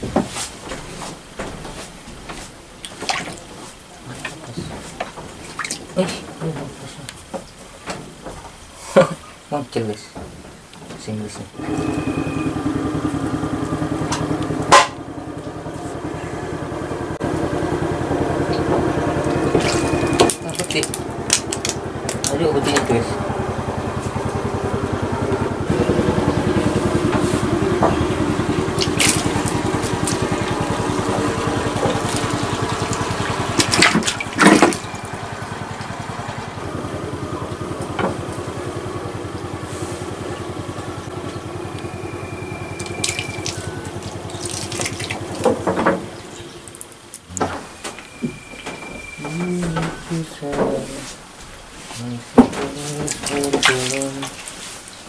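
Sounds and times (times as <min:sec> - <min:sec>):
small engine running: 0:11.6 - 0:47.2
sharp knocks: 0:14.0 - 0:15.0.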